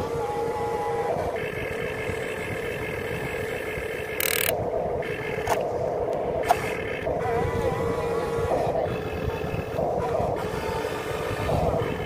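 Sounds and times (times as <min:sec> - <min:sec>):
electric motors whining: 0:00.0 - 0:12.0
sharp clicks: 0:04.2 - 0:04.6.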